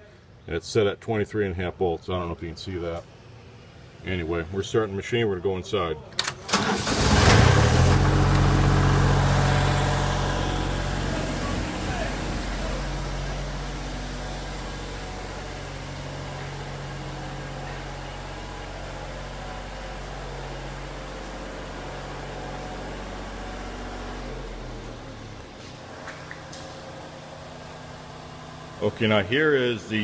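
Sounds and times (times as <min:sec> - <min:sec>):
diesel welder engine running: 0:06.4 - 0:30.0.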